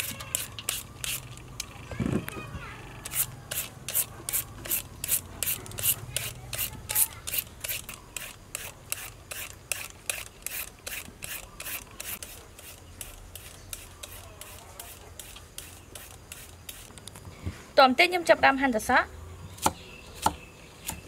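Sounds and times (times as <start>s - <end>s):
peeler scraping vegetables: 0.0s - 1.5s, 3.0s - 17.2s.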